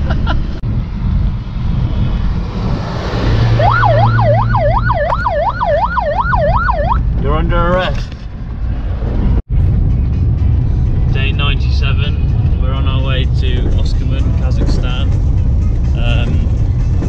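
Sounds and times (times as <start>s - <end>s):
car road and engine noise: 0.0s - 17.0s
siren wailing: 3.5s - 7.1s.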